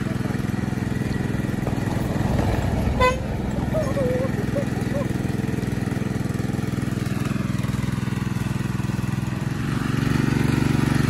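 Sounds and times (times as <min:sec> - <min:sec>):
walking tractor engine chugging: 0:00.0 - 0:11.0.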